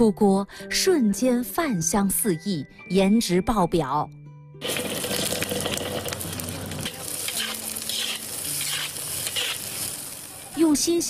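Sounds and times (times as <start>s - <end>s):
spatula scraping a wok: 4.6s - 10.2s
beans sizzling in a wok: 4.6s - 11.0s.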